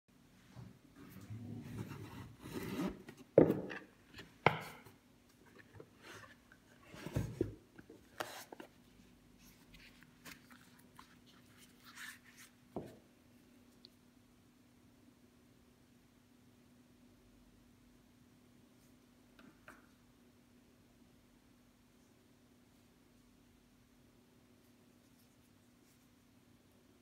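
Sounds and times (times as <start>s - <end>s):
cardboard box rubbing and sliding: 1.7s - 3.3s.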